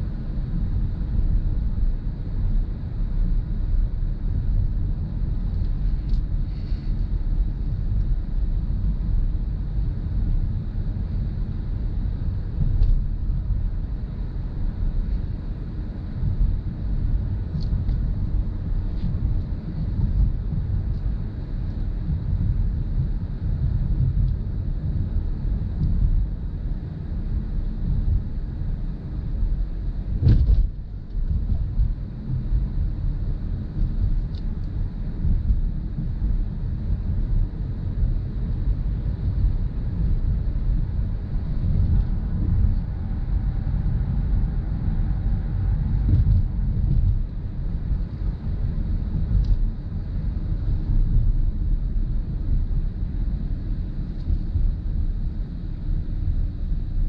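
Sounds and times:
road and tyre noise: 0:00.0 - 0:57.0
sharp thump: 0:30.2 - 0:30.7.

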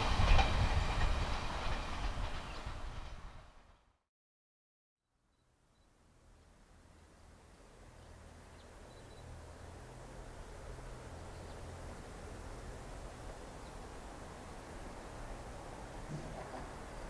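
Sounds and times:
distant electric train rumble: 0:00.0 - 0:04.0, 0:06.0 - 0:17.0
faint bird chirps: 0:05.3 - 0:06.0, 0:08.5 - 0:09.3.

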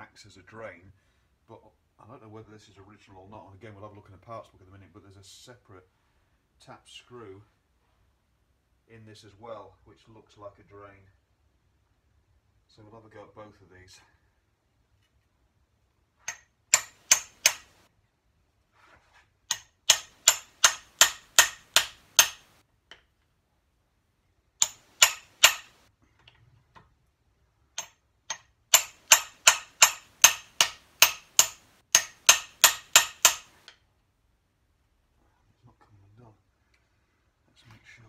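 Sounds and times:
hammer striking impact driver: 0:16.3 - 0:17.8, 0:19.5 - 0:22.6, 0:24.6 - 0:25.8, 0:27.8 - 0:33.7.

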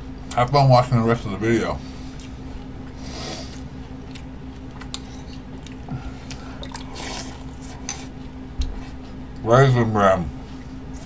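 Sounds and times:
wet chewing and slurping: 0:02.1 - 0:09.2.

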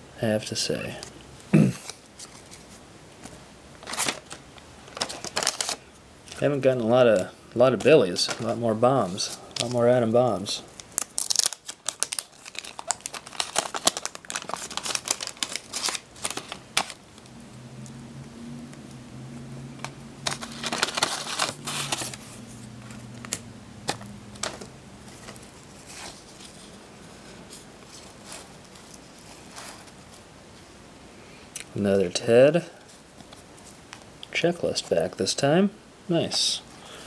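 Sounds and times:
cards being handled: 0:01.8 - 0:09.8, 0:10.7 - 0:17.0, 0:19.8 - 0:30.3
wrapper crinkling and tearing: 0:03.8 - 0:06.4, 0:10.7 - 0:17.2, 0:20.2 - 0:26.7
low hum: 0:17.0 - 0:28.9.

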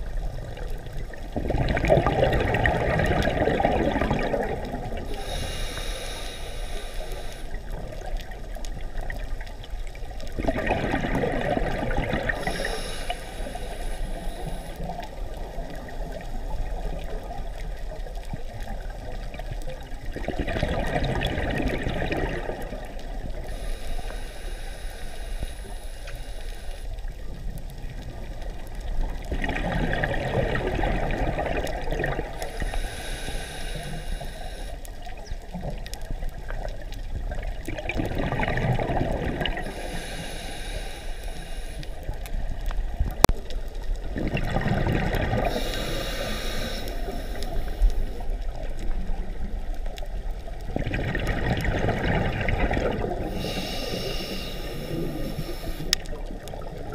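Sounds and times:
exhaled bubbles gurgling: 0:00.0 - 0:24.7, 0:27.0 - 0:56.9
regulator inhale hiss: 0:05.0 - 0:10.2, 0:12.3 - 0:17.2, 0:23.1 - 0:27.5, 0:32.2 - 0:35.6, 0:39.4 - 0:43.9, 0:45.4 - 0:49.1, 0:52.9 - 0:56.4.

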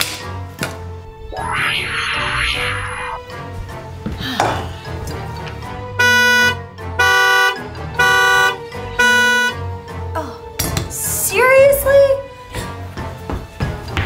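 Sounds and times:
car horn honking: 0:05.9 - 0:09.7.

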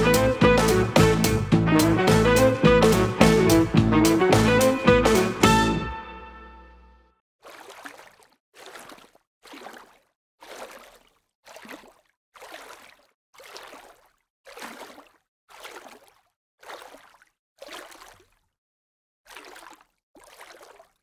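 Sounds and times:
water sloshing and splashing: 0:07.4 - 0:18.6, 0:19.3 - 0:21.0.

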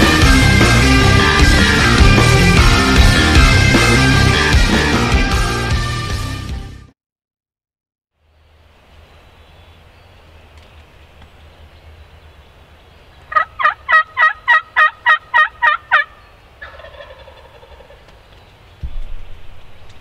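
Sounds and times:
turkey yelping: 0:13.3 - 0:18.2
rough turkey call: 0:13.3 - 0:18.3.

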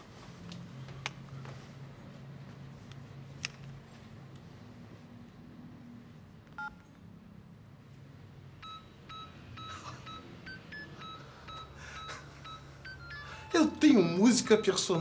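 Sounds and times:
phone keypad beeps: 0:06.6 - 0:06.8, 0:08.6 - 0:15.0.

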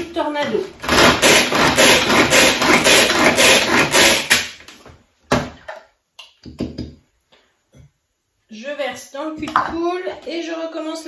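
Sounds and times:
hand chopper chopping eggs: 0:00.8 - 0:04.6.

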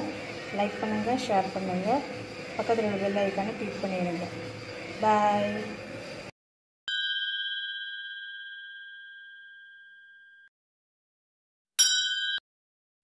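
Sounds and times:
bell-like ding: 0:06.9 - 0:10.5, 0:11.8 - 0:12.4.

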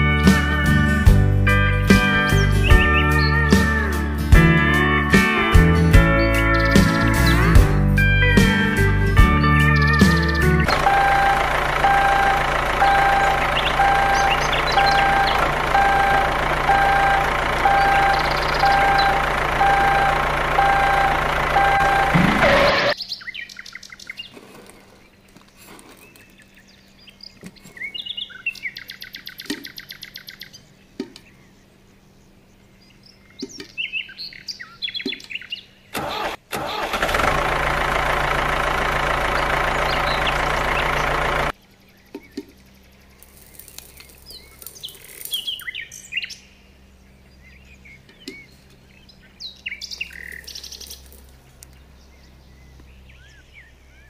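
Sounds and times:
bird chirps: 0:06.2 - 0:07.5, 0:09.6 - 0:36.0, 0:39.3 - 0:54.0
toy tractor engine running: 0:09.8 - 0:23.0, 0:36.0 - 0:41.6
regular beeping: 0:09.9 - 0:23.0.

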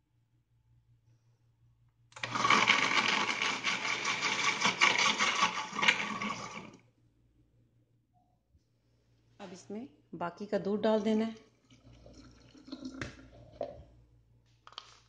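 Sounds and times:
blender running: 0:02.2 - 0:06.8.

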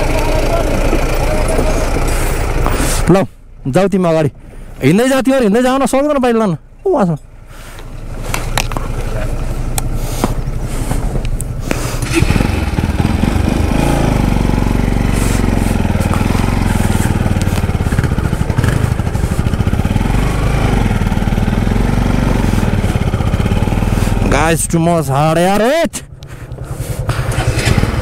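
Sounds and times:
motorcycle engine pulling under load: 0:08.1 - 0:24.6, 0:26.4 - 0:28.0.

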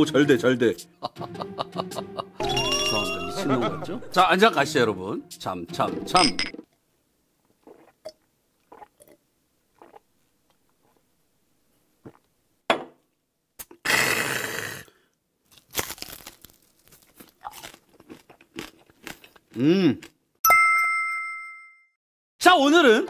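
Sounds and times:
crunching and chewing crispy food: 0:15.4 - 0:20.2.

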